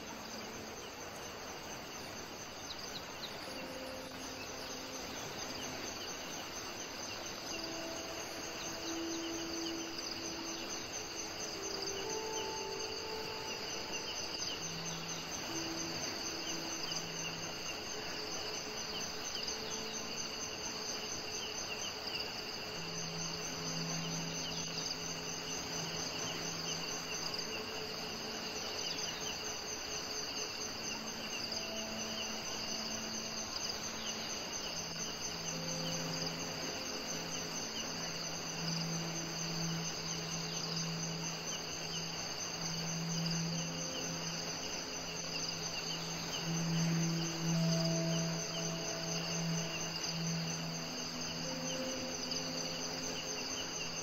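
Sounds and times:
background hiss: 0.0 - 54.0
faint low humming notes: 0.0 - 54.0
insects chirping: 0.0 - 54.0.

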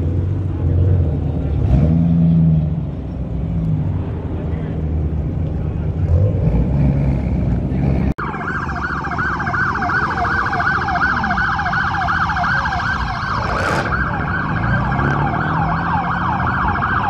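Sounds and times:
car engines rumbling: 0.0 - 17.0
siren yelping: 8.2 - 17.0.

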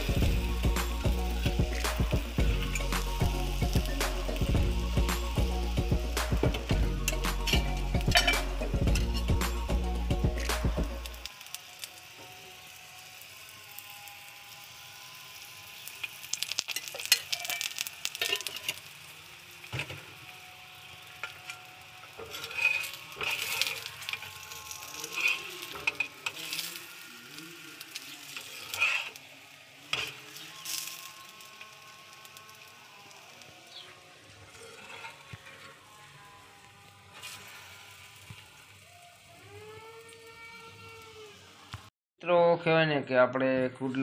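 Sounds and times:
flatbread sizzling in oil: 0.0 - 41.9
metal spatula scraping a pan: 6.3 - 9.4, 15.4 - 32.8, 33.7 - 38.7.

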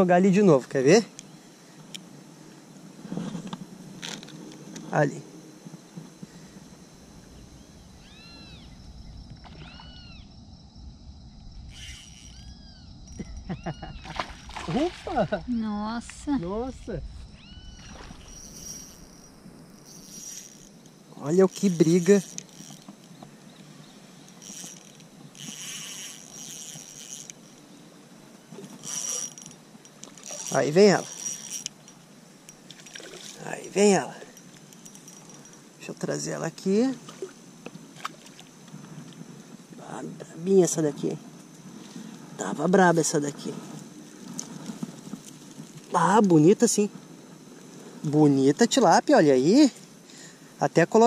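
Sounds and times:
animal calling: 7.5 - 8.8, 9.5 - 10.3, 11.7 - 14.8, 17.3 - 20.5
steady low rumble: 10.0 - 11.8, 12.6 - 17.8
spinning reel whirring: 11.7 - 13.3, 17.5 - 23.2, 24.1 - 27.8, 28.5 - 32.7.

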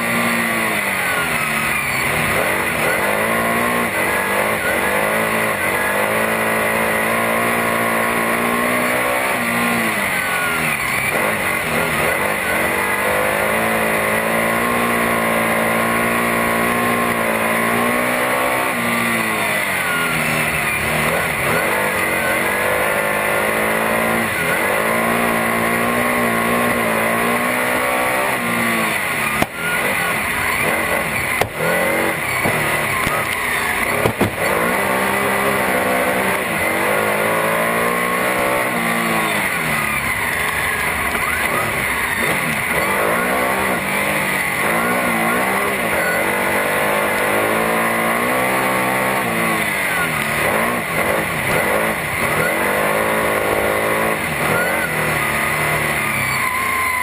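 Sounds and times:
race car engine: 0.0 - 57.0
sharp knocks: 34.0 - 34.5.

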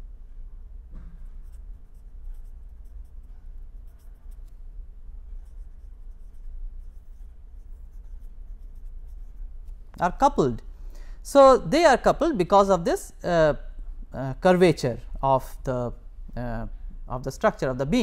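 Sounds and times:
steady low hum: 0.0 - 18.0
pen scratching on paper: 1.2 - 4.6, 5.2 - 9.8.

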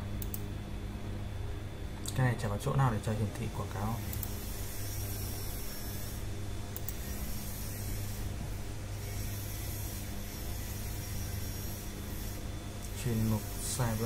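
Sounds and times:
low electrical hum: 0.0 - 14.0
faint clicks: 0.2 - 0.4.

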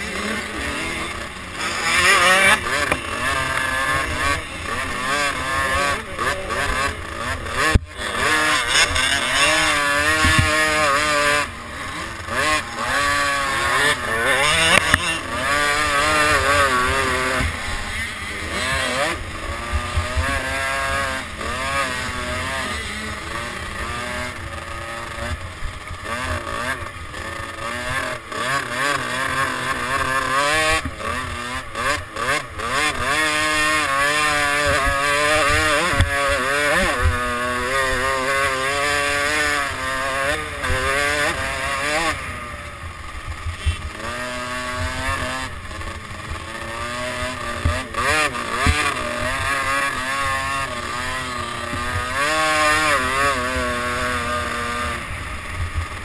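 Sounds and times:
motocross bike engine revving: 0.0 - 56.0
sharp knocks from rough ground: 7.6 - 7.9, 8.8 - 11.1, 14.4 - 16.2, 47.5 - 49.8.

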